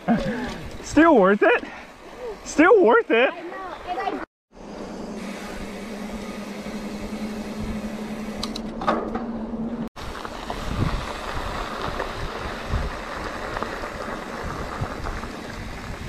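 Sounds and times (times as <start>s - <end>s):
bike low hum: 3.4s - 16.0s
wind rushing over camera: 10.0s - 16.0s.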